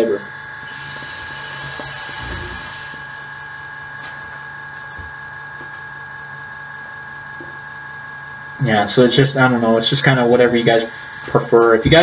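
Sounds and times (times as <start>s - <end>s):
steady hum: 0.0s - 12.0s
thin high whine: 0.0s - 12.0s
hookah bubbling and exhaling: 0.6s - 3.3s.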